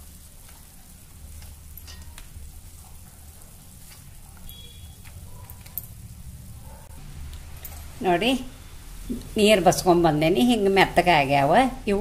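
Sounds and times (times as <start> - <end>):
wet patter and drips: 0.0 - 6.1.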